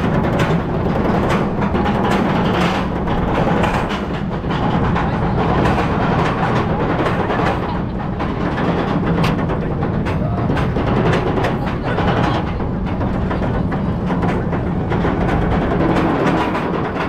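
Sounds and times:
lift chain rattling: 0.0 - 17.0.

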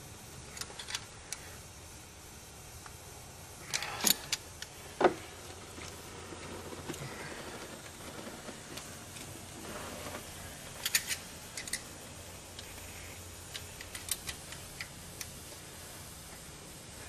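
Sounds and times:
metal tools clicking on engine: 10.8 - 11.9.

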